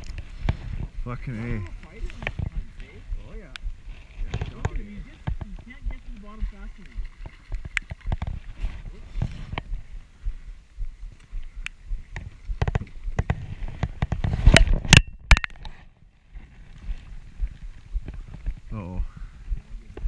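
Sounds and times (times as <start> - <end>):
knocks and clatter in a boat: 4.1 - 9.7, 12.1 - 15.7.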